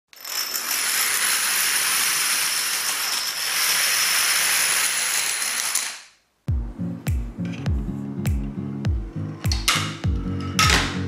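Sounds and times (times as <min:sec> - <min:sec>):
plastic dominoes clattering: 0:00.1 - 0:06.2.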